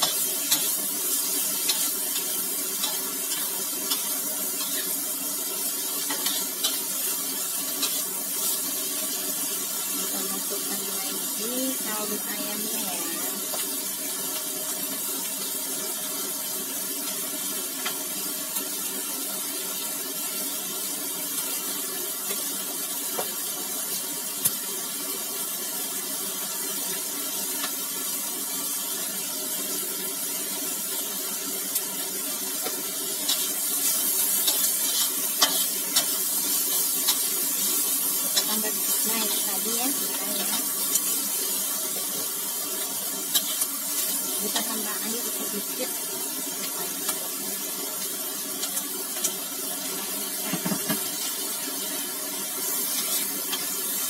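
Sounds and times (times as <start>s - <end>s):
stir-fry sizzling in a wok: 0.0s - 54.0s
metal spatula clicks and scrapes: 6.1s - 6.8s, 32.6s - 36.2s.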